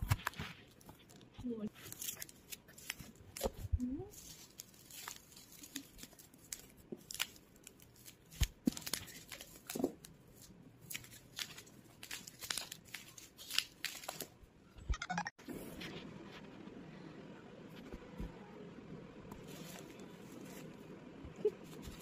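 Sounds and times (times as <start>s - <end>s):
bubble wrap crinkling: 0.0s - 14.5s, 19.4s - 22.0s.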